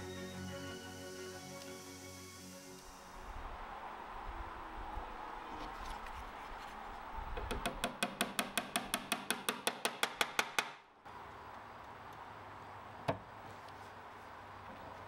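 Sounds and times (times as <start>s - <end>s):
small hammer tapping a pin: 7.5s - 10.8s.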